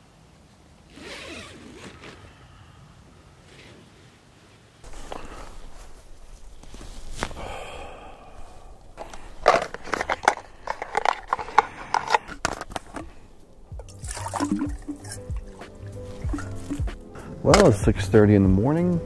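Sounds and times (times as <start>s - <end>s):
clicks and rattles of camp gear: 4.8s - 7.5s, 8.5s - 17.8s
water pouring into pot: 13.9s - 16.9s.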